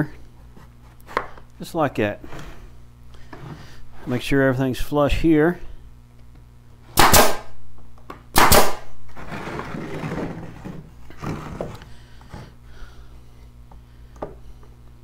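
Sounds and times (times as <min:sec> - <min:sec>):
staple gun firing: 0:07.0 - 0:07.5, 0:08.4 - 0:08.8
wooden frame scraping on workbench: 0:09.1 - 0:12.5.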